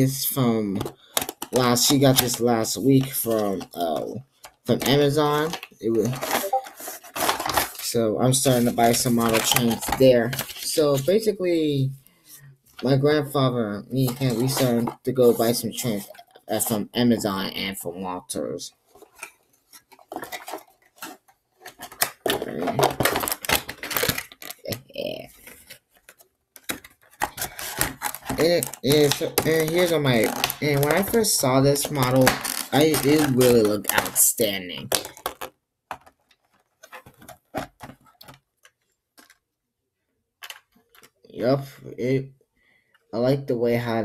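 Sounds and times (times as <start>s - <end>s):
packaging rustling: 5.3s - 7.9s, 8.5s - 11.0s, 18.9s - 39.4s.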